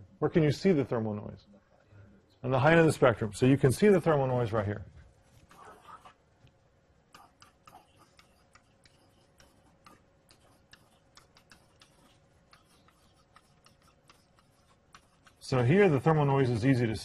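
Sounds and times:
pen tapping on whiteboard: 7.1 - 15.4.

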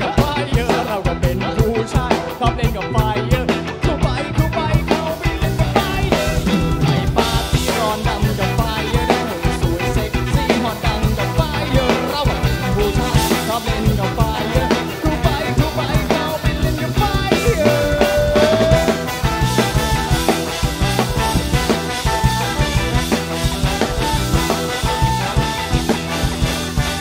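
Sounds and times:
drum kit played hard: 0.0 - 27.0
live rock band playing: 0.0 - 27.0
long held note: 17.5 - 19.6.

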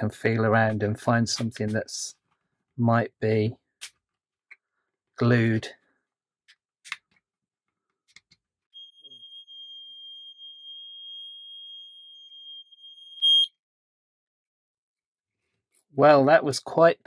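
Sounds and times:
smoke alarm high-pitched tone: 8.8 - 13.6.

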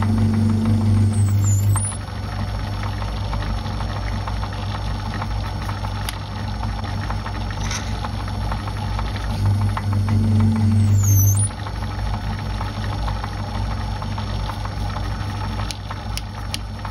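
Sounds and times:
metal lathe motor hum: 0.0 - 2.0, 9.3 - 11.6.

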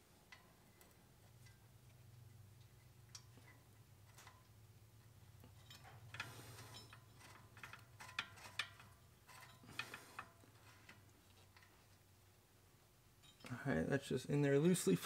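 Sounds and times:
metallic clicks and ticks: 0.3 - 11.9.

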